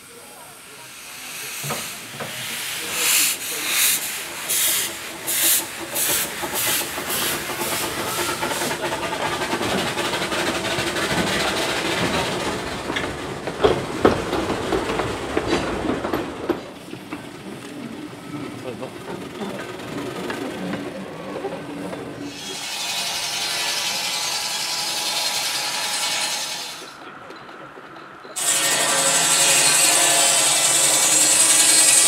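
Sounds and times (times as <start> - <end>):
steam locomotive chuffing: 0.0 - 32.0
train wheels rolling: 0.5 - 32.0
wheels clicking over rail joints: 4.0 - 18.0.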